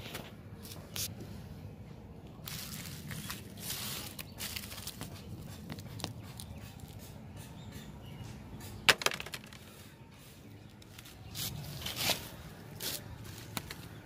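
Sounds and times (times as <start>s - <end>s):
dry palm fibre crackling: 2.2s - 7.2s, 10.7s - 14.0s.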